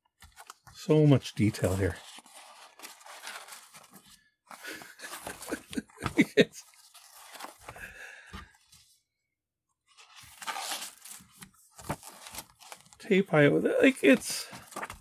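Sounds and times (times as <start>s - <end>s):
book pages flipping: 0.2s - 8.9s, 9.9s - 13.0s, 13.8s - 15.0s
paper crackles: 1.4s - 7.8s, 10.0s - 13.1s, 13.8s - 15.0s.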